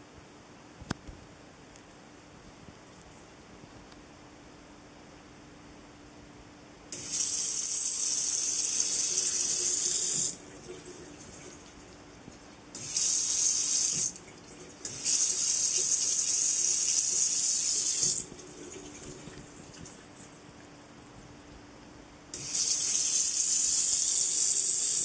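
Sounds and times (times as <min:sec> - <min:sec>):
faucet water running into sink: 0:07.0 - 0:20.3, 0:22.3 - 0:25.0.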